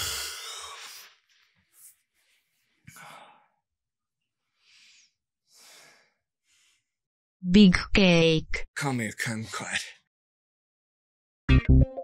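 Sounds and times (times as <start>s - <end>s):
person sighing and breathing: 0.0s - 1.1s.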